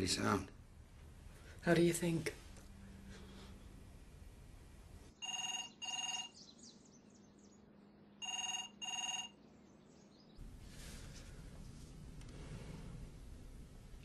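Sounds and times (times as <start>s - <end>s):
telephone ringing: 5.2s - 6.4s, 8.2s - 9.4s.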